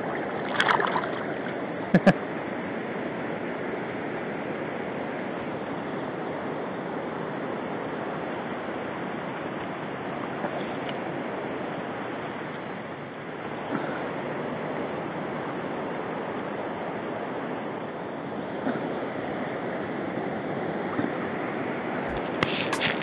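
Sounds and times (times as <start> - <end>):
river water rushing: 0.0 - 2.1.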